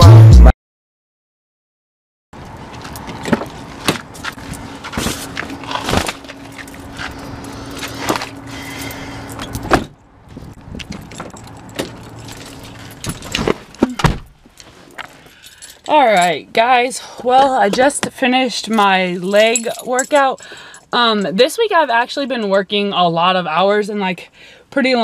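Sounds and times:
steady low hum: 3.6 - 13.4
car door shutting: 9.4 - 10.0, 13.0 - 14.4
keys jangling: 10.5 - 13.4, 14.6 - 16.4, 18.7 - 20.9
door and bag knocks: 13.1 - 14.3.

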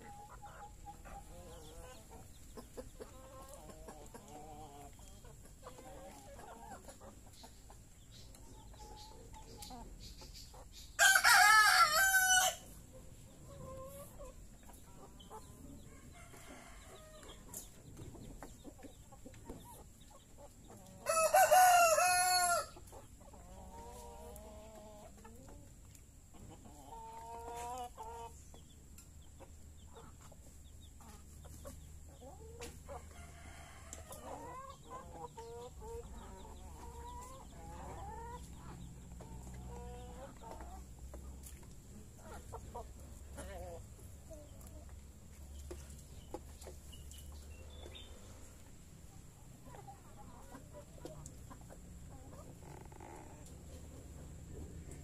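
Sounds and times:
hens clucking softly: 0.0 - 10.9, 12.6 - 55.0
rooster crowing: 11.0 - 12.6, 21.0 - 22.7.

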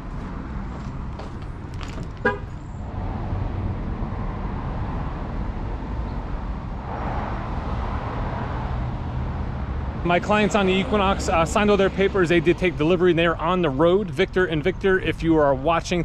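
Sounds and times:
traffic rumble: 0.0 - 16.0
wind: 0.0 - 16.0
car horn chirp: 2.2 - 2.7.

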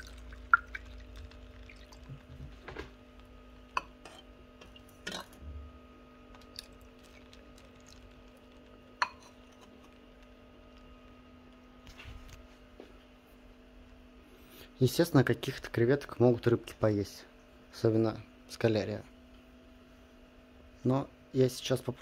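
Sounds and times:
water pouring and splashing: 0.0 - 2.8, 6.4 - 8.7
steady hum: 0.0 - 22.0.

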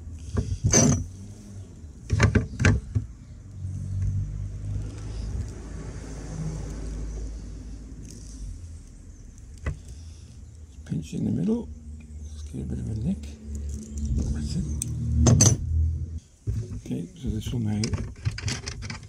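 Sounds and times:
low rumble: 11.8 - 16.2.

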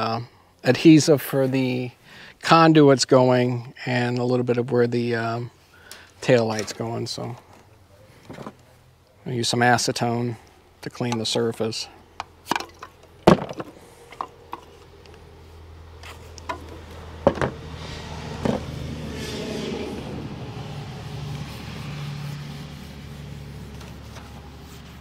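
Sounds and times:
metal can clicks and knocks: 12.5 - 13.7
low hum: 12.8 - 25.0
rag rubbing on wall: 17.7 - 25.0.

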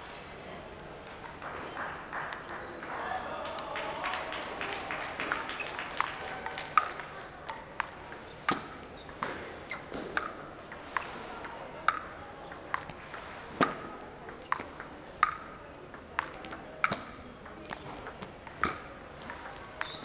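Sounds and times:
faint ball clicks: 6.3 - 20.0
table tennis ball clicking: 6.4 - 20.0.

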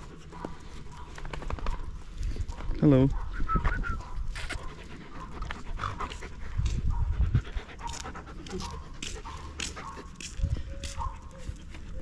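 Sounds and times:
dog panting: 3.8 - 12.0.

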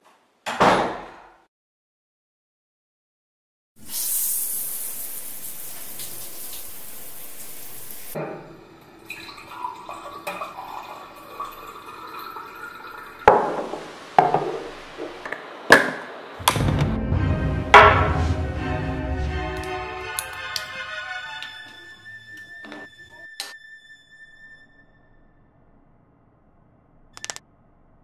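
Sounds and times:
liquid pouring into a glass: 8.8 - 14.7
glass knocking on a table: 13.3 - 15.1.

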